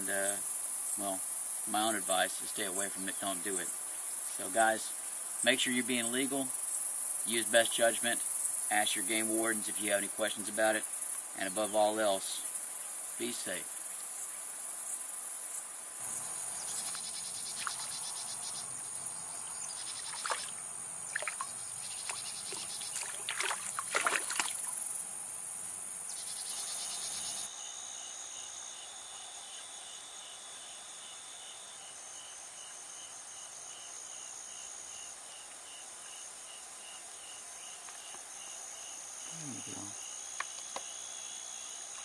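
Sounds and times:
insect chorus chirping: 0.0 - 42.0
bait splashing water surface: 17.5 - 18.0, 20.0 - 24.8.

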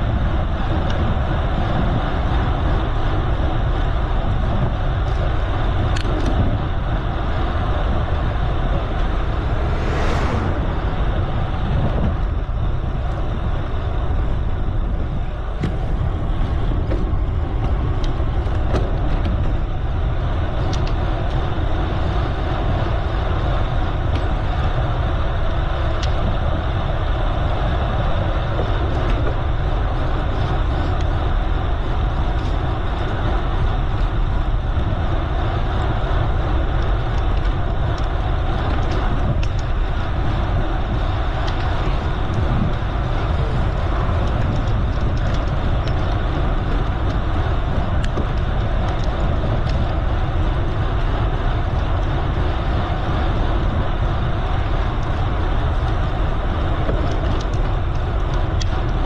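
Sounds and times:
bicycle tyres on road: 0.0 - 59.0
wind rumble on microphone: 0.0 - 59.0
whoosh: 8.6 - 12.8.

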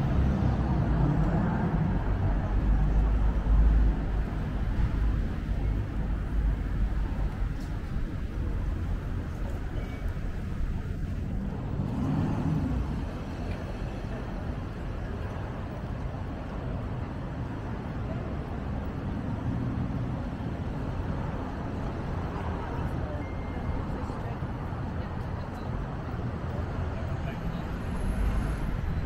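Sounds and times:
traffic rumble: 0.0 - 29.0
vehicle passing loudly: 11.4 - 13.4.

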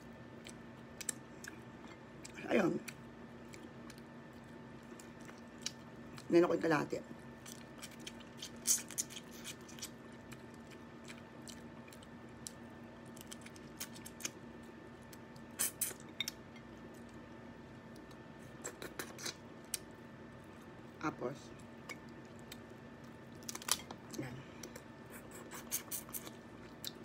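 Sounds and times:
faint steady hum: 0.0 - 27.0
wet chewing and biting: 0.3 - 6.3, 7.3 - 17.2.

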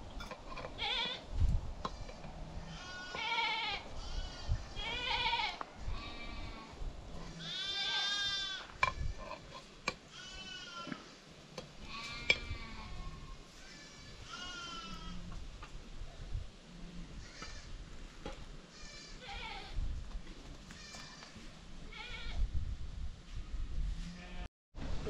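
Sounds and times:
livestock bleating: 0.8 - 1.2, 2.0 - 8.7, 10.1 - 11.2, 11.8 - 15.3, 18.7 - 19.8, 24.0 - 24.5.

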